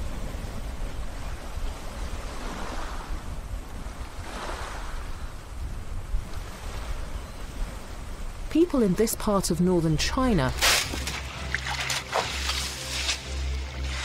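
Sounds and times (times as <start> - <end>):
small waves lapping on sand: 0.7 - 5.5, 10.6 - 14.0.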